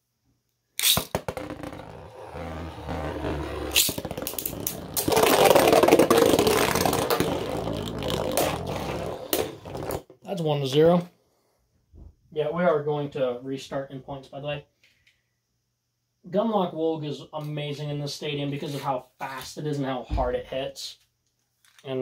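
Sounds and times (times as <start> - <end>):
spinning top launcher clicks: 0.8 - 1.2
spinning tops scraping and clacking: 0.8 - 2.0, 3.2 - 9.7.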